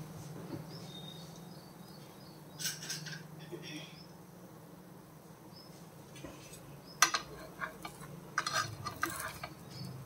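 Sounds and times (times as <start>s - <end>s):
spatula scraping a pan: 6.3s - 10.0s.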